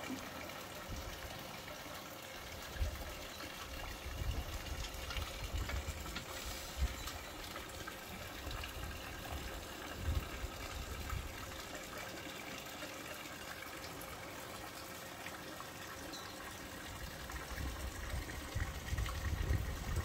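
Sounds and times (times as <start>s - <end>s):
water running into a pool: 0.0s - 20.0s
wind gusts on microphone: 17.5s - 20.0s.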